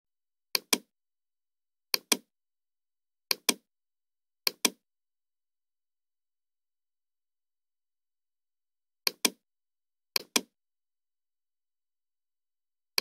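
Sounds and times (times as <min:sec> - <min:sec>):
computer mouse clicking: 0:00.5 - 0:00.9, 0:01.9 - 0:02.3, 0:03.3 - 0:03.7, 0:04.4 - 0:04.8, 0:09.0 - 0:09.4, 0:10.2 - 0:10.5.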